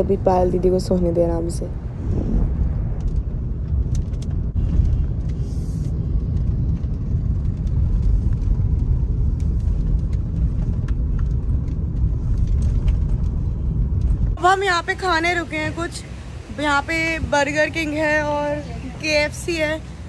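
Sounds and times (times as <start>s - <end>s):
car engine and tyre rumble: 0.0s - 20.0s.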